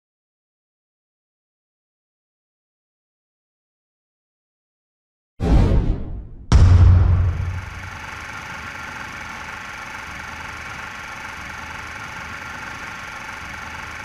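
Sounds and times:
deep boom: 5.4 - 8.0
steady hissing drone: 7.2 - 14.0.

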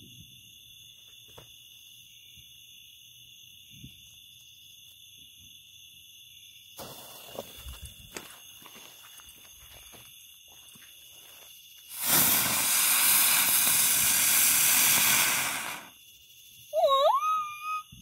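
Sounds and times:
firework hissing: 6.8 - 7.7, 11.9 - 16.0.

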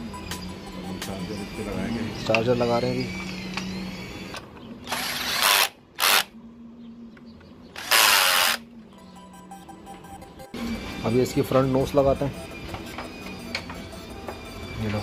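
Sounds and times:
power drill driving bolts: 3.2 - 6.3, 7.8 - 8.6.

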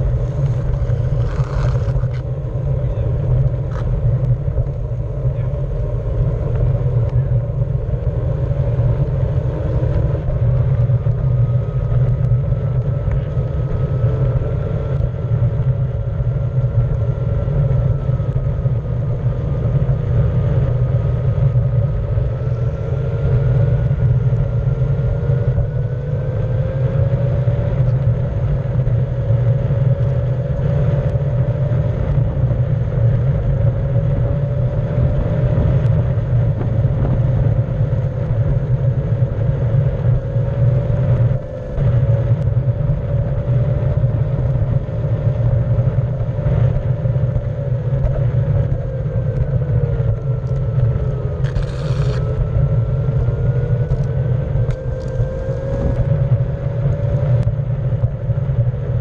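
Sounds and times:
electric skateboard motor whine: 0.0 - 59.0
tyre rumbling on rough pavement: 0.0 - 59.0.

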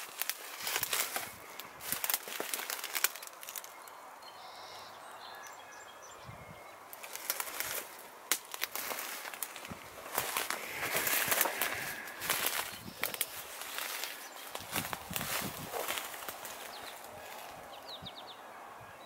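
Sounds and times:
footsteps crunching through dry grass: 0.0 - 3.8, 6.9 - 17.8.

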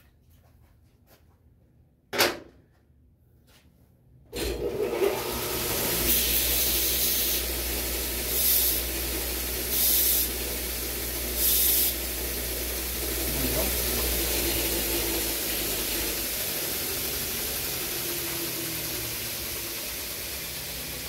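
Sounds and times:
bench grinder running: 4.4 - 21.0.

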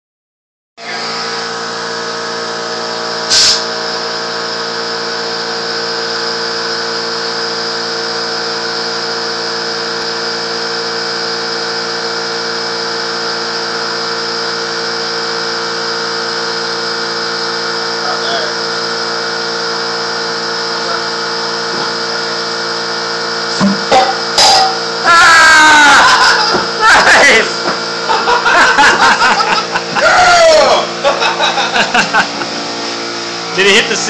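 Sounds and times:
loud hissing burst: 3.3 - 3.7.

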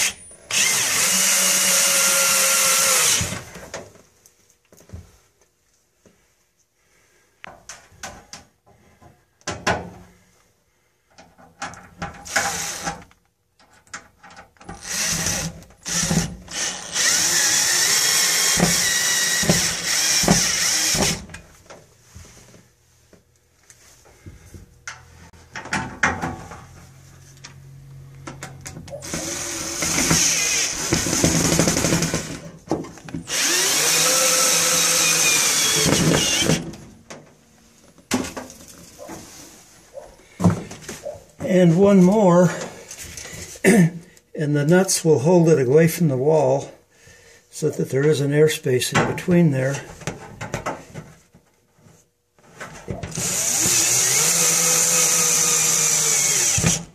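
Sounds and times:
power drill driving screws: 0.0 - 3.6, 12.2 - 13.1, 14.6 - 21.3, 29.0 - 32.4, 33.2 - 36.7, 53.1 - 56.9.

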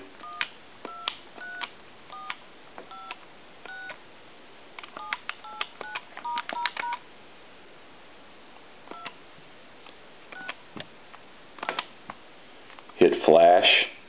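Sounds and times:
two-tone dialing beeps: 0.2 - 2.3, 2.9 - 4.0.

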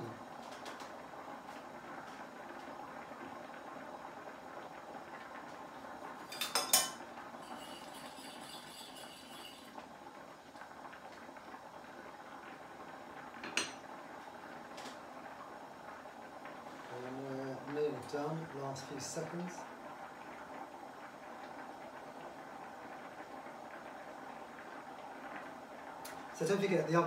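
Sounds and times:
metal spoon clinking on pan: 6.3 - 9.7
faint high ringing: 6.6 - 9.8.

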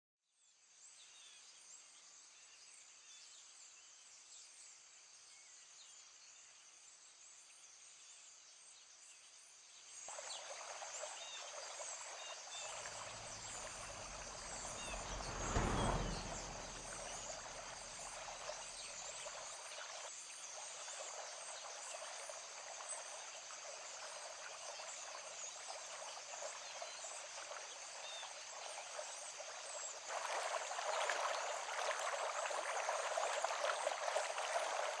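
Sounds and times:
rushing stream: 10.1 - 35.0
vehicle passing on road: 12.5 - 19.1.

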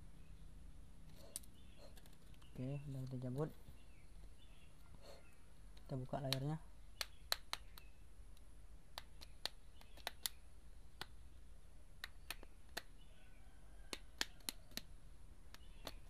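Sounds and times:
sharp plastic clicks: 5.7 - 10.4, 12.0 - 12.9, 13.9 - 14.9, 15.5 - 16.0.

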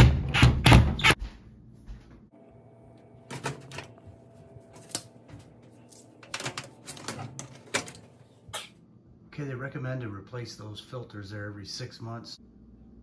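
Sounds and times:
metal filters clicking: 4.8 - 8.4.

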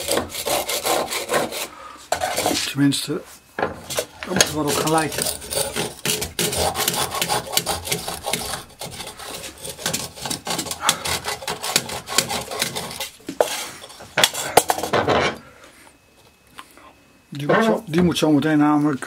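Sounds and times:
hand rasp on wood: 0.0 - 2.6, 4.4 - 13.7.

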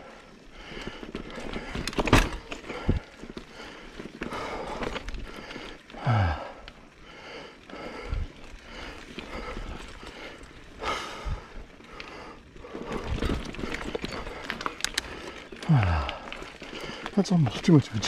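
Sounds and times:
person breathing hard: 0.0 - 17.2
bike bumping over ground: 0.8 - 3.6.

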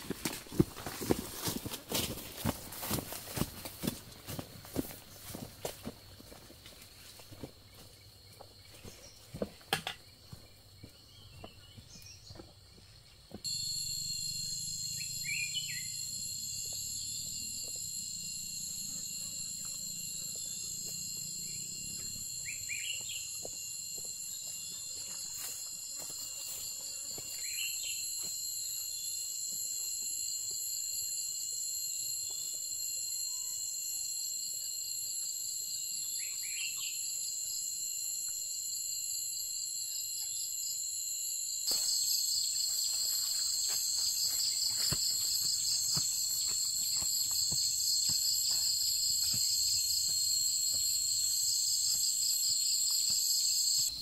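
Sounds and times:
high-pitched insect chorus: 0.0 - 54.0
falling bird chirp: 14.9 - 16.0.

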